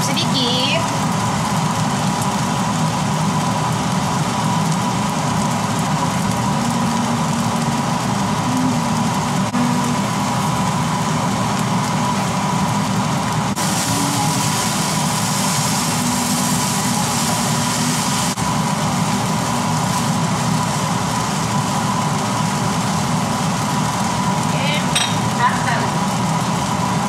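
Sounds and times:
range hood fan whirring: 0.0s - 27.0s
rice sizzling in a wok: 0.0s - 27.0s
spatula turning rice: 13.5s - 21.4s.

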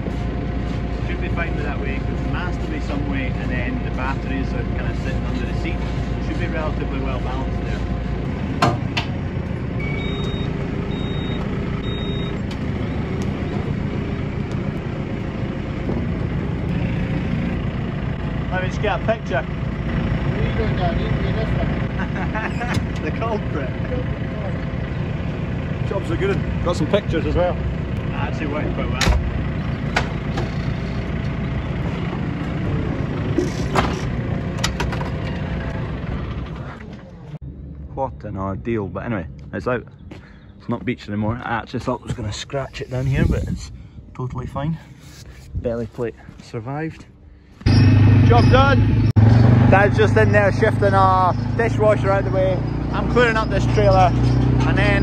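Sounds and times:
diesel engine running: 0.0s - 44.1s, 44.8s - 55.0s
short high beeps: 9.8s - 13.1s.

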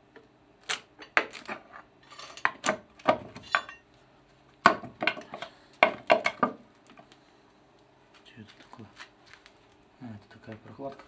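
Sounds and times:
hand tools clinking on metal: 3.4s - 3.8s.

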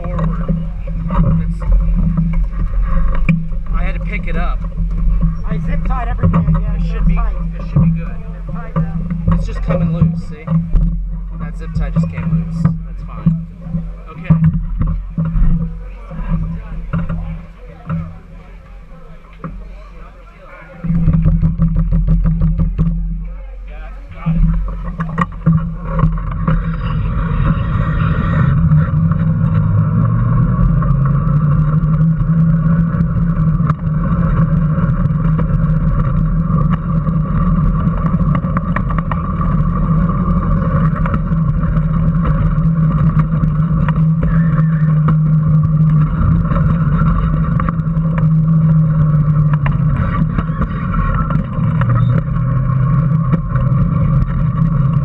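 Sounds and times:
small clicks and knocks: 30.6s - 55.0s.

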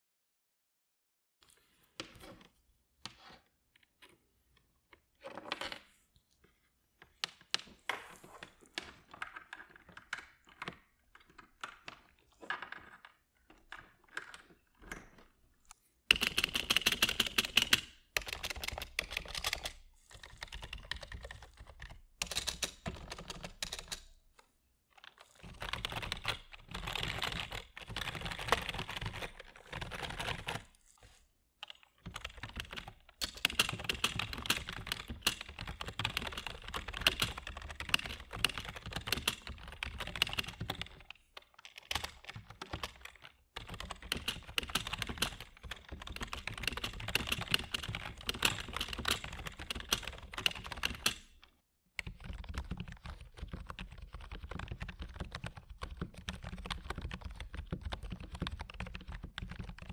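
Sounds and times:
fast keyboard typing: 16.1s - 24.2s, 25.1s - 51.4s, 52.0s - 59.9s.

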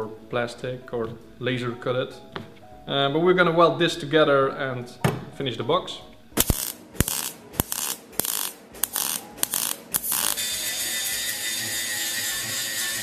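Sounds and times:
angle grinder grinding steel: 6.4s - 13.0s
arc welding crackle: 6.4s - 13.0s.

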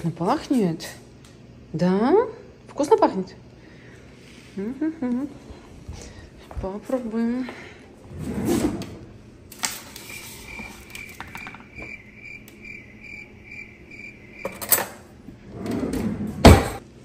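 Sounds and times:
high repeating chirp: 10.0s - 14.6s.

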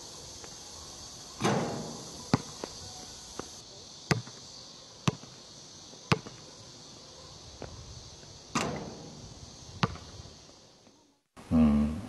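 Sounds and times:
faint steady hiss: 0.0s - 12.0s
basketball bouncing on hard court: 2.3s - 2.6s, 9.8s - 10.0s.

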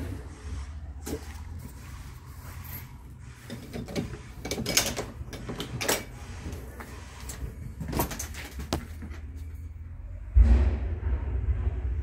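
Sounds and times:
low steady rumble: 9.3s - 12.0s.

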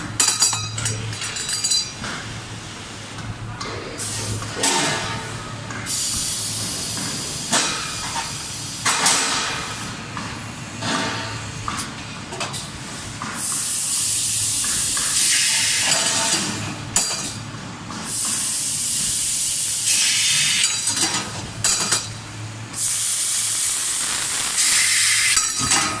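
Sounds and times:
laser cutter hissing: 13.4s - 16.3s, 18.1s - 20.8s, 22.8s - 25.5s.

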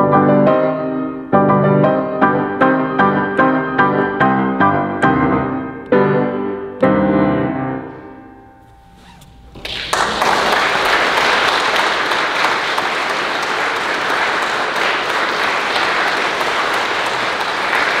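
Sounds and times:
audience applauding: 9.6s - 18.0s.

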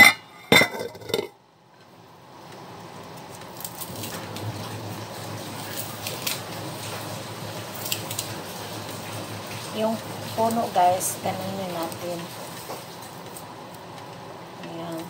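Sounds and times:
metal pot lid clanking: 0.0s - 1.3s
broth boiling and bubbling: 0.0s - 1.5s, 2.6s - 15.0s.

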